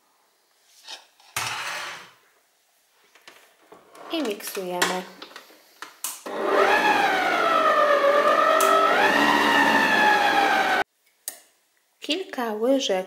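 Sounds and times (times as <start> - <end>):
stand mixer motor whine: 6.3 - 10.8.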